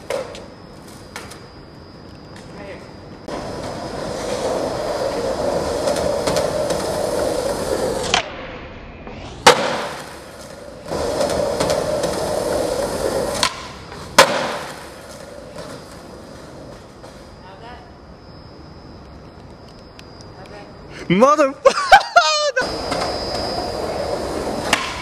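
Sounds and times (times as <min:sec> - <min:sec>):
skateboard wheels rolling on concrete: 0:00.0 - 0:20.7, 0:21.9 - 0:25.0
skateboard landing slam: 0:09.2 - 0:12.2, 0:13.2 - 0:15.8, 0:24.6 - 0:25.0
skateboard cracks: 0:09.3 - 0:16.4.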